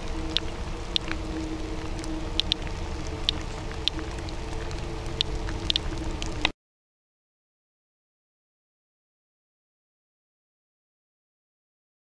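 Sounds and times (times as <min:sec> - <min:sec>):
steady low rumble: 0:00.0 - 0:06.5
geiger counter clicking: 0:00.3 - 0:01.2, 0:02.0 - 0:02.6, 0:03.2 - 0:04.4, 0:05.1 - 0:06.5.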